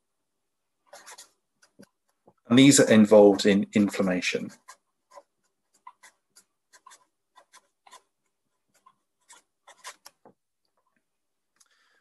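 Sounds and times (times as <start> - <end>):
felt-tip pen writing on paper: 0.8 - 2.2, 3.8 - 10.3.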